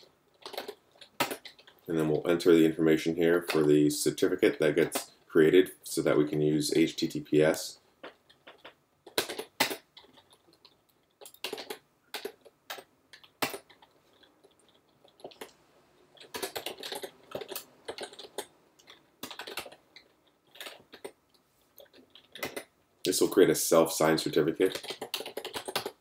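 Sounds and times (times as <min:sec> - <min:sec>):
typing on computer keyboard: 0:00.3 - 0:01.8, 0:08.0 - 0:15.6, 0:16.2 - 0:21.2, 0:21.8 - 0:22.7, 0:24.6 - 0:26.0.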